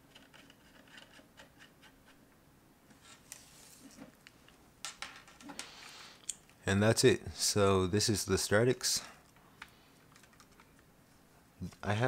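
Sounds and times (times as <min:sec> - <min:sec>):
handling clicks and rubbing: 0:09.1 - 0:10.9.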